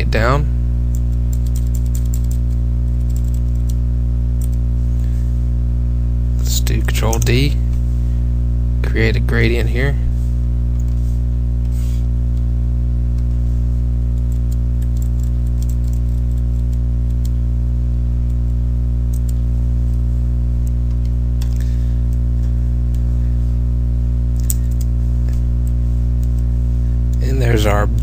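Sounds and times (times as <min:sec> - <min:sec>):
electrical mains hum: 0:00.0 - 0:28.0
computer mouse clicks: 0:00.9 - 0:03.8, 0:14.2 - 0:17.4, 0:19.1 - 0:20.0, 0:24.4 - 0:26.4.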